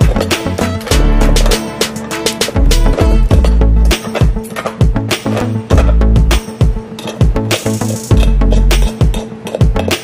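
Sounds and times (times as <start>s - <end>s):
kick drum and bass beat: 0.0s - 1.7s, 2.6s - 7.5s.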